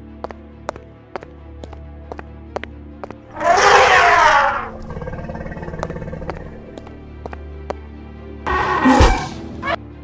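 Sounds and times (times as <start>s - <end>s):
cartoon background music: 0.1s - 10.0s
low drone: 3.3s - 7.2s.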